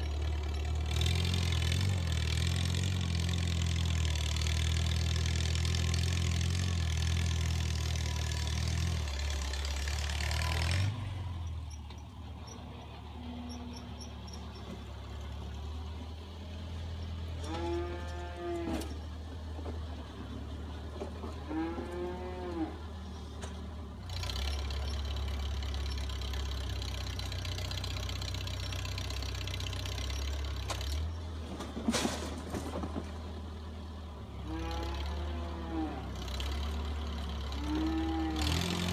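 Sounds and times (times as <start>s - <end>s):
tractor engine running: 0.0s - 38.9s
cow mooing: 17.4s - 19.0s, 21.4s - 22.8s, 34.4s - 36.2s, 37.6s - 38.9s.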